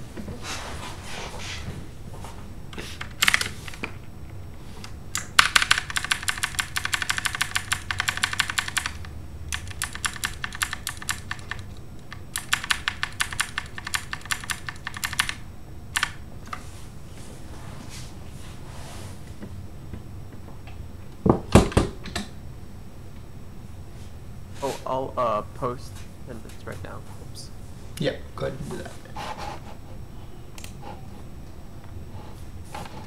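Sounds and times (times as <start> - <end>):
computer keyboard typing: 3.0 - 4.0, 4.8 - 15.4, 16.0 - 16.2.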